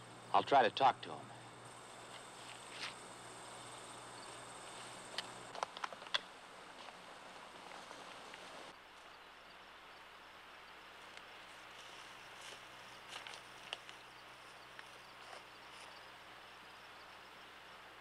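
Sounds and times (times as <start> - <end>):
soundtrack hiss: 0.0 - 5.5, 6.2 - 18.0
footsteps through underbrush: 2.0 - 3.0, 11.0 - 16.0.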